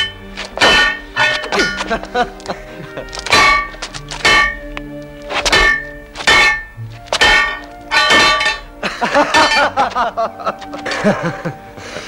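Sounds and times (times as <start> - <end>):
swords clashing: 0.0 - 2.5, 3.1 - 9.8.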